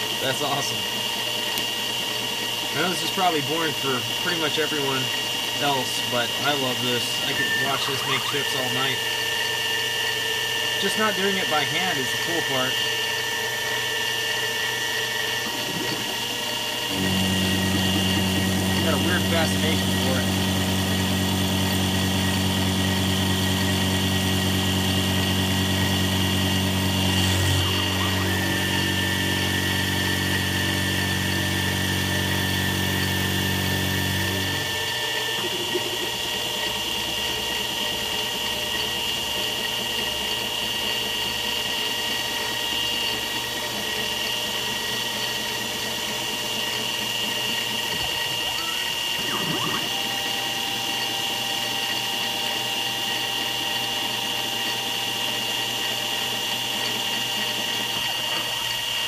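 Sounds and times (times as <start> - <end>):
mill motor whine: 0.0 - 59.0
deep hum: 16.9 - 34.8.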